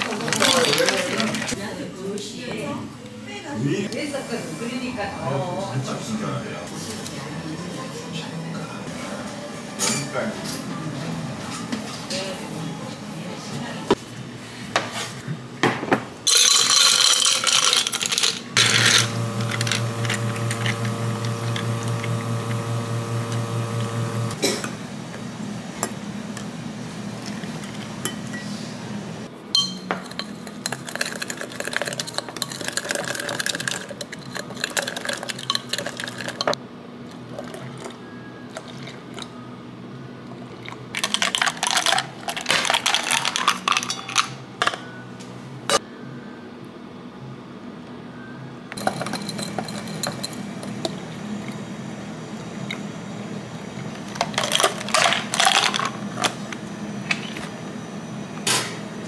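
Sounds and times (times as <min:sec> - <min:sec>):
dishes and utensils clattering: 0:09.8 - 0:10.6, 0:41.0 - 0:44.9, 0:48.8 - 0:51.0, 0:54.1 - 0:56.4
small appliance motor humming: 0:18.6 - 0:24.4.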